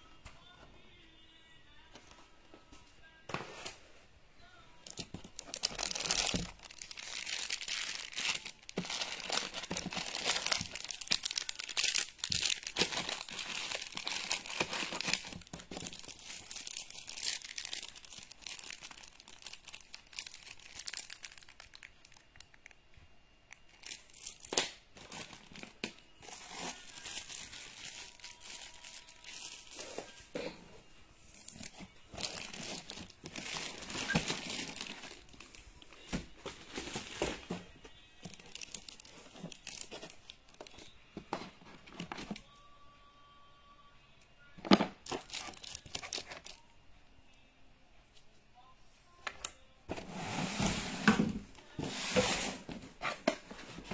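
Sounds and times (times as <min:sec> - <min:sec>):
plastic film crinkling: 0:04.8 - 0:22.8, 0:23.5 - 0:30.3, 0:31.3 - 0:40.9, 0:45.0 - 0:46.6.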